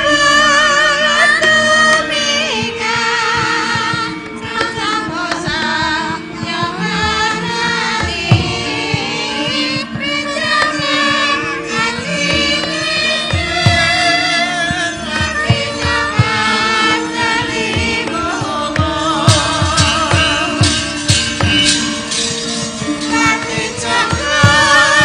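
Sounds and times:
sharp percussive strokes: 11.8 - 25.0
person singing with wavering pitch: 22.8 - 25.0.

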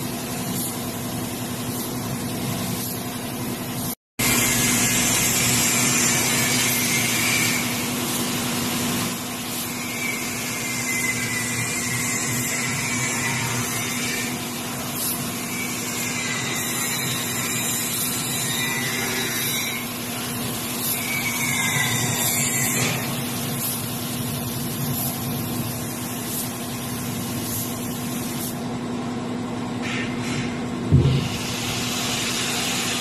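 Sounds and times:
air compressor humming: 0.0 - 12.9, 19.4 - 33.0
paint spray gun hissing: 23.2 - 28.6, 31.3 - 33.0.

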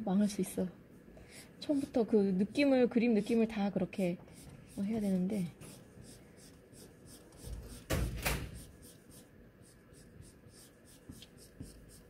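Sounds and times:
marker scrubbing on paper: 3.0 - 12.0.

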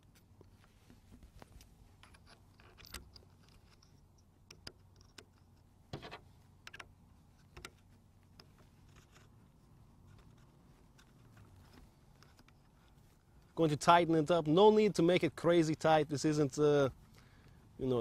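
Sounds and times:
small metal parts clicking: 2.0 - 9.4.

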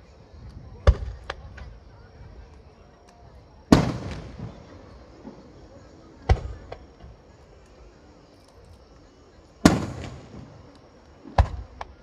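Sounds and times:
firework shells booming: 3.7 - 5.4, 6.2 - 6.9, 9.6 - 10.6, 11.2 - 12.0.

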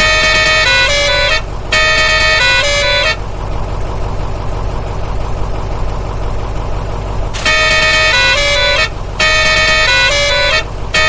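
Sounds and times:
multi-note vehicle horn: 0.0 - 3.3, 7.4 - 11.0
engine running with low hum: 0.0 - 11.0.

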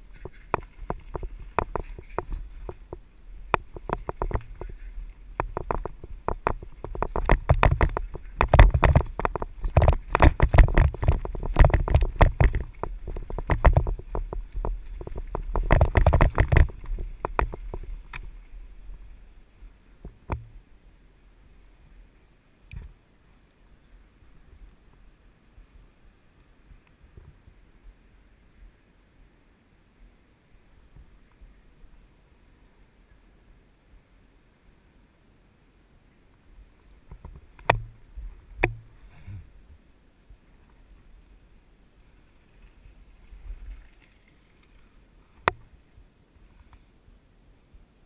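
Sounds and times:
mountain bike clattering: 0.0 - 18.4
wind noise on microphone: 0.0 - 20.7, 36.6 - 41.5.

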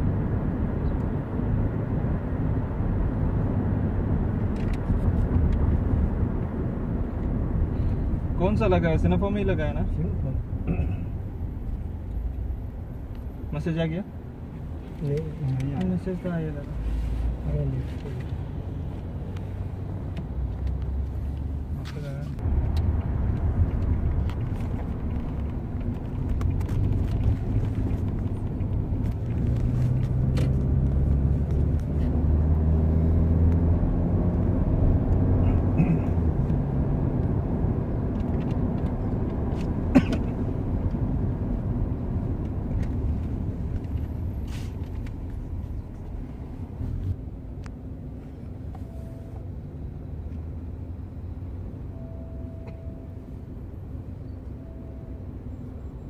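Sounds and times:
road rumble inside car: 0.0 - 56.0
car engine accelerating: 15.6 - 47.3.

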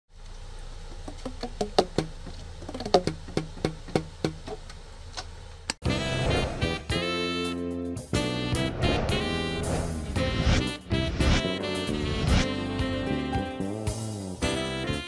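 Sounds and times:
saxophone jazz music: 5.8 - 15.0.

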